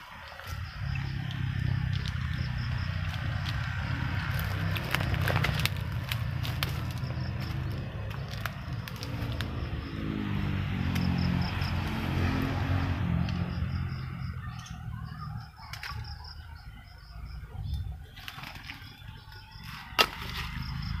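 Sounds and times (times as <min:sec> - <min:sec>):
low motor hum: 0:00.0 - 0:19.5
bird chirping: 0:13.3 - 0:21.0.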